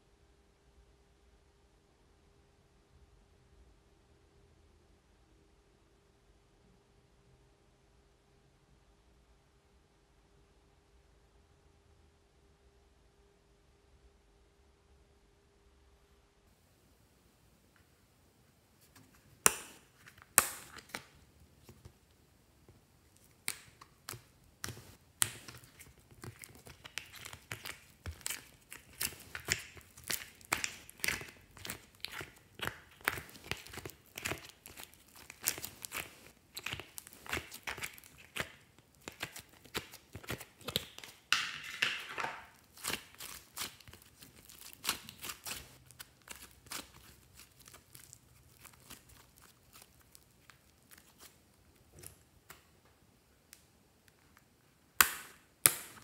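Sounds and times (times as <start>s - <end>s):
slime stretched with crackling tear: 23.2s - 41.3s, 42.5s - 51.4s.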